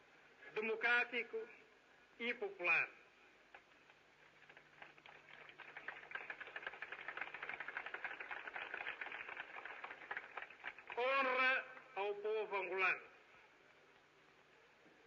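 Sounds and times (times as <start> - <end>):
crowd applauding: 4.4 - 11.4.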